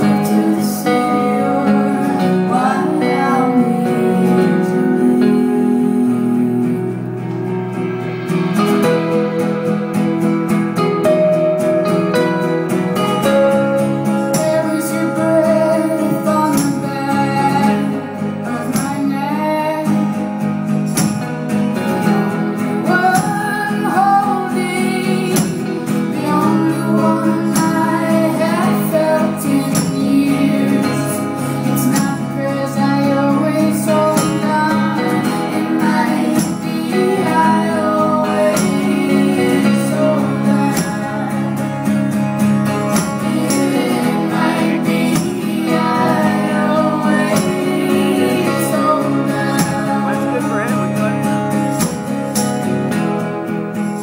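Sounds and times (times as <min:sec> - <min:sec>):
woman singing: 0:00.0 - 0:07.6, 0:12.1 - 0:20.4, 0:21.7 - 0:52.5
strummed acoustic guitar: 0:00.0 - 0:54.0
drums and cymbals: 0:07.4 - 0:13.3, 0:19.9 - 0:26.6, 0:40.7 - 0:48.7, 0:50.8 - 0:54.0.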